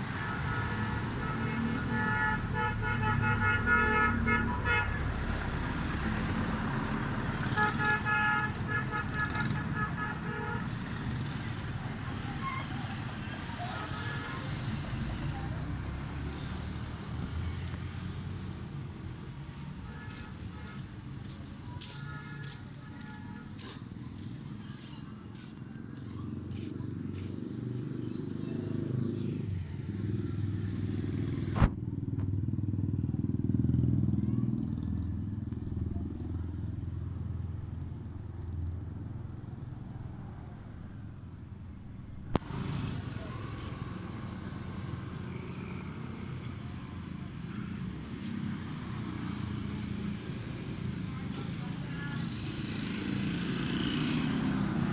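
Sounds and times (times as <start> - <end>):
vehicle engines passing: 0.0 - 54.9
motorcycles and scooter riding past: 23.5 - 40.6, 42.4 - 54.9.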